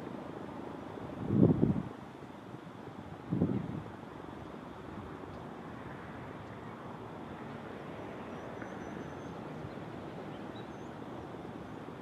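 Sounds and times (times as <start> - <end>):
steady outdoor rushing noise: 0.0 - 12.0
faint high bird chirps: 8.3 - 11.0.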